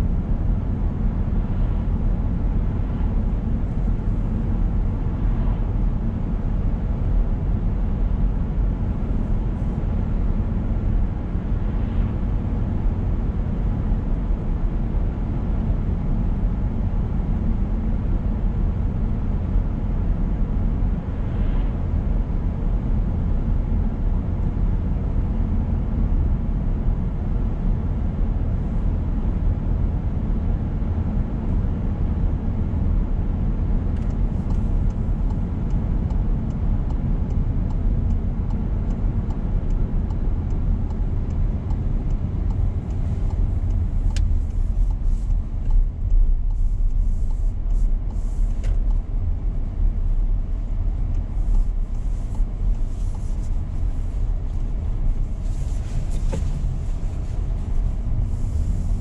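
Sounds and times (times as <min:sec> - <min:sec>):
car engine and tyre rumble: 0:00.0 - 0:59.0
faint ticks: 0:34.0 - 0:49.0.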